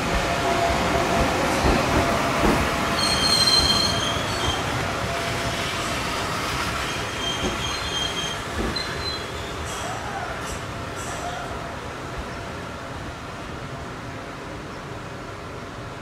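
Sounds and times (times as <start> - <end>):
high squeals of train: 0.0 - 12.6
train rumbling slowly: 0.0 - 16.0.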